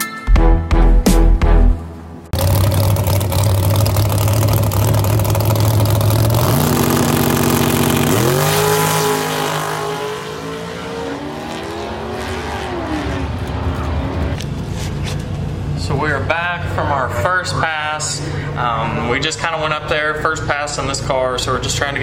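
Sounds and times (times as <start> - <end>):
race car engine revving: 2.4 - 14.4.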